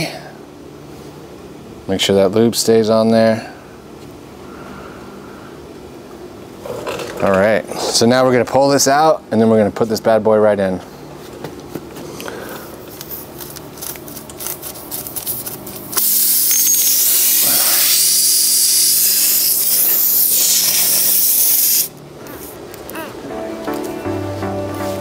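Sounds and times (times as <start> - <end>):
air hissing from tyre: 15.9 - 22.6.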